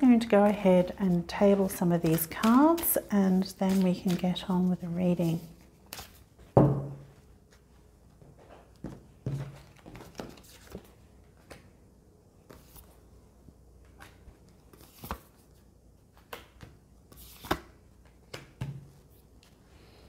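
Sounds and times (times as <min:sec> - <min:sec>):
cards dealt on a table: 0:01.6 - 0:04.4, 0:16.2 - 0:18.8.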